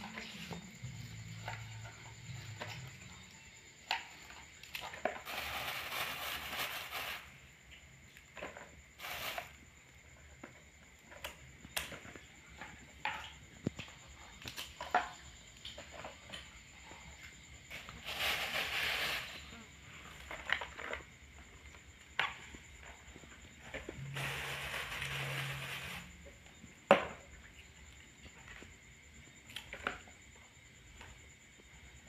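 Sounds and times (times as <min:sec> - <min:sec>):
rustle of handling greens: 0:17.6 - 0:20.8.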